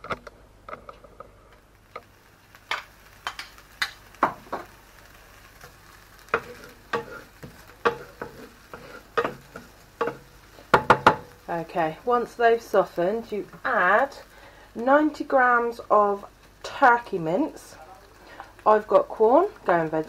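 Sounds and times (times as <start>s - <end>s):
onion sizzling: 0.4s - 20.0s
wooden spoon scraping frying pan: 5.5s - 11.6s.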